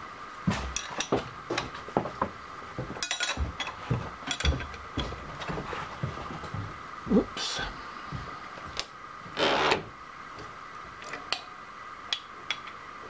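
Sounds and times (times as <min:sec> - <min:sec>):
milling machine clicks and knocks: 0:03.0 - 0:05.2.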